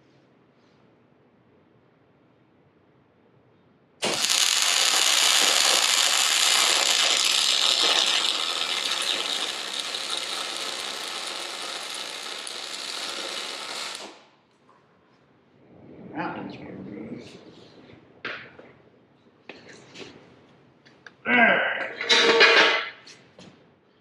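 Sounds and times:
electric arc welding: 4.0s - 14.3s.

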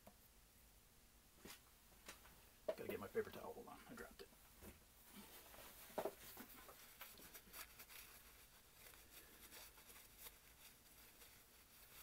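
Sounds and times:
paper towel rustling: 5.0s - 12.0s.

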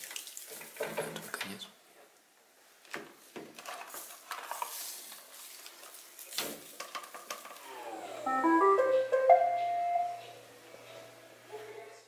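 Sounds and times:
piano music: 7.8s - 10.4s.

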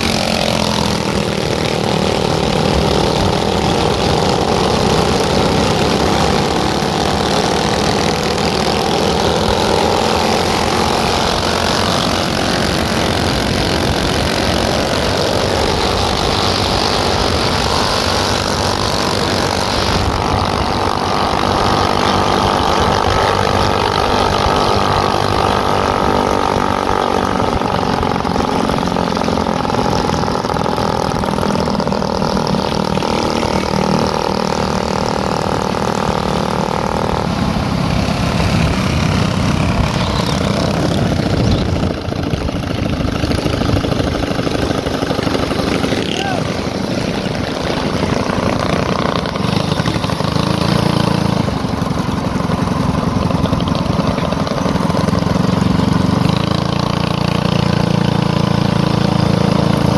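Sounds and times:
rushing wind: 0.0s - 32.5s, 36.6s - 56.6s
motorcycle engine running: 0.0s - 59.9s
road noise: 0.0s - 59.9s.

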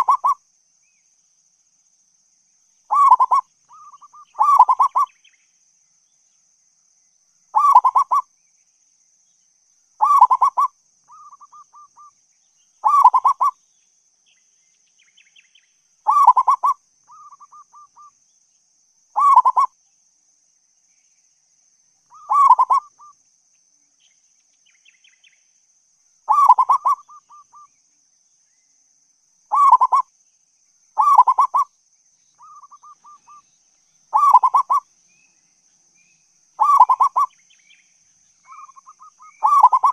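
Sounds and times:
dove cooing: 0.0s - 0.4s, 2.9s - 5.1s, 7.6s - 8.2s, 10.0s - 11.9s, 12.8s - 13.5s, 16.1s - 18.1s, 19.2s - 19.7s, 22.1s - 23.1s, 26.3s - 27.6s, 29.5s - 30.0s, 31.0s - 31.6s, 34.1s - 34.8s, 36.6s - 37.3s, 38.5s - 39.9s
faint high-pitched whine: 0.0s - 39.9s.

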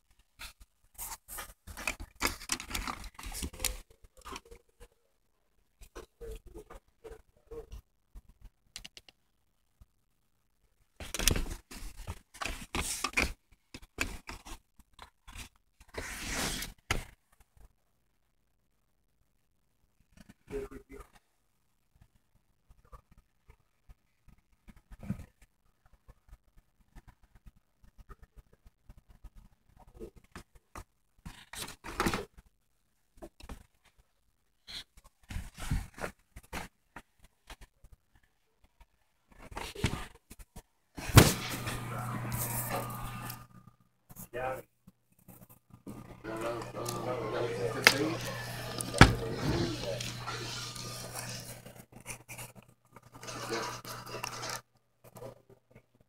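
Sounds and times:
phone rustling against fabric: 45.1s - 54.6s.

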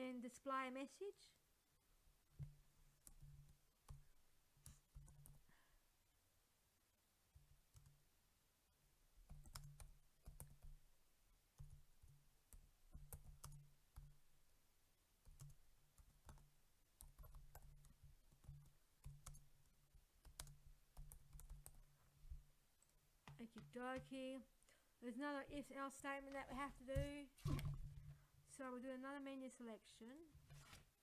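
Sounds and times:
typing on computer keyboard: 9.2s - 10.8s, 11.6s - 14.1s, 15.3s - 19.5s, 20.2s - 21.8s.

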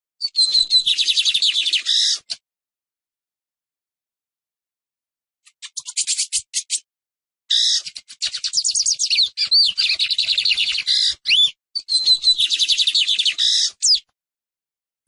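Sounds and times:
bird singing chirps and trills: 0.2s - 2.4s, 5.5s - 6.9s, 7.5s - 14.1s.

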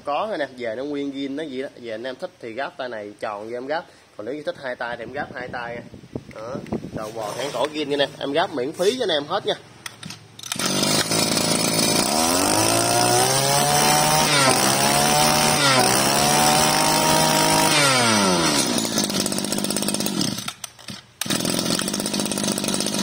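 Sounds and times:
two-stroke brush-cutter engine revving: 10.0s - 23.0s.

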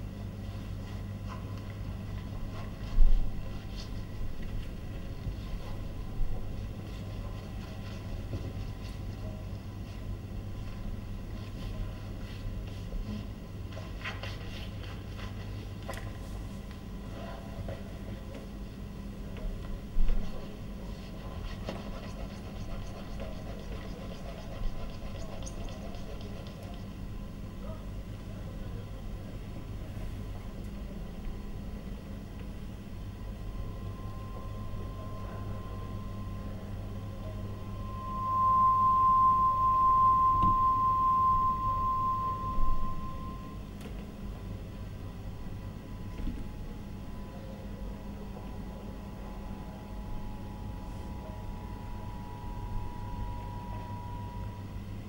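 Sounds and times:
low hum: 31.4s - 47.5s, 48.4s - 55.0s
steady low rumble: 32.6s - 43.7s
sustained high tone: 33.0s - 43.8s, 49.6s - 55.0s.

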